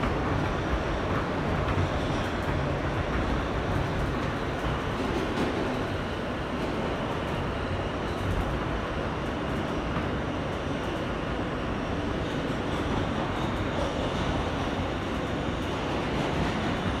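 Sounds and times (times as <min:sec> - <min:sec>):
subway car rumbling and rattling: 0:00.0 - 0:17.0.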